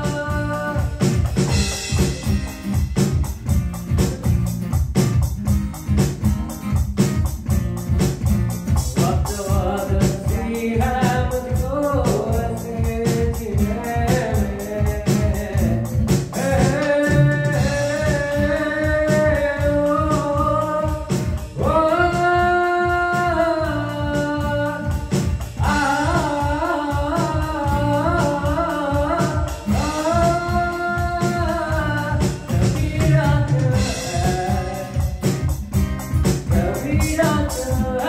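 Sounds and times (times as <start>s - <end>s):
man singing with vibrato: 0.0s - 2.8s, 8.7s - 38.0s
acoustic guitar: 0.0s - 38.0s
electronic drum beat: 0.0s - 38.0s.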